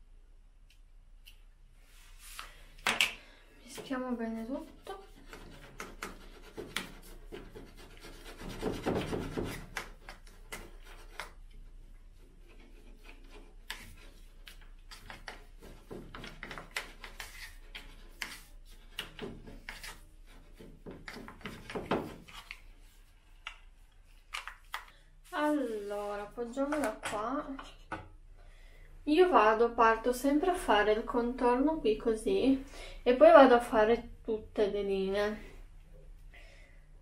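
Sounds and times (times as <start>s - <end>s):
brush scraping dye in plastic bowl: 3.6s - 23.2s.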